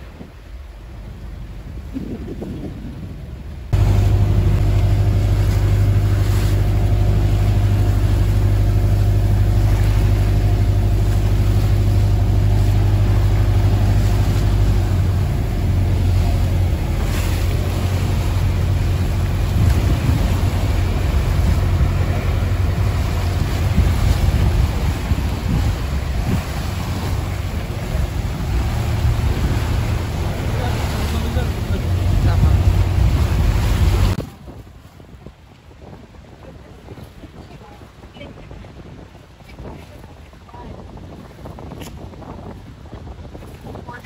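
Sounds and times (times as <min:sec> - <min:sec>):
water rushing past hull: 0:00.0 - 0:44.0
wind: 0:00.0 - 0:44.0
boat engine droning: 0:03.1 - 0:34.6.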